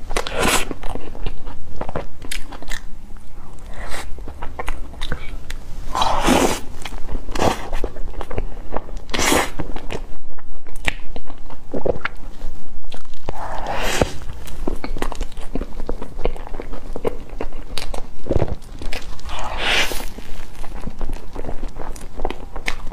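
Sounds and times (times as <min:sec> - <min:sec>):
wet chewing and lip smacking: 0:06.2 - 0:22.9.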